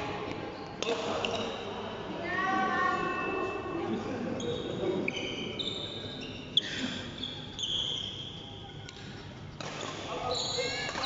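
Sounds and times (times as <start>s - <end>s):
sneakers squeaking on floor: 0.5s - 1.8s, 4.4s - 11.0s.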